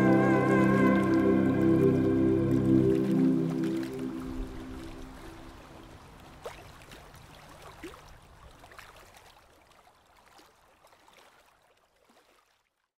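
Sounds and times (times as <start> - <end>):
low music note: 0.0 - 5.5
water drips: 0.0 - 11.1
water trickling and gurgling: 0.0 - 12.7.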